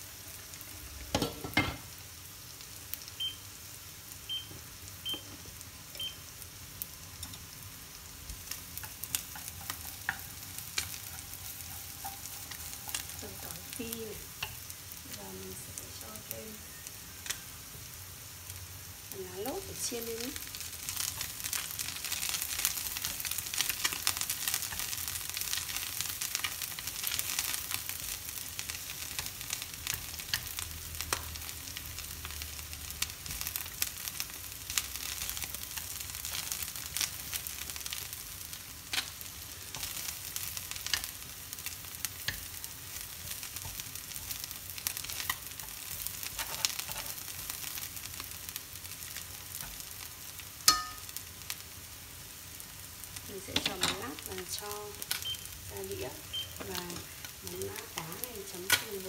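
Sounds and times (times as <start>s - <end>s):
oil sizzling in a frying pan: 0.0s - 59.0s
chopsticks tapping a pan: 8.8s - 13.8s, 14.4s - 14.6s, 50.6s - 51.2s.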